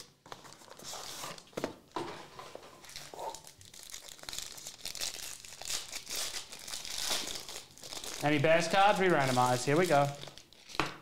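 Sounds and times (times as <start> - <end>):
foil wrapper crinkling: 2.8 - 10.8.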